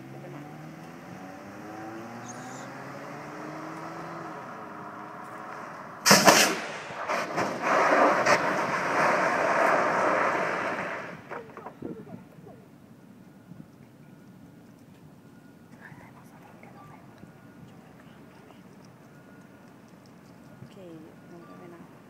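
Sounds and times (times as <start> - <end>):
car engine accelerating: 0.0 - 6.1
scraping rumble of tumbling car: 5.1 - 12.3
car crashing impacts: 5.5 - 11.8
air cannon blast: 6.0 - 11.3.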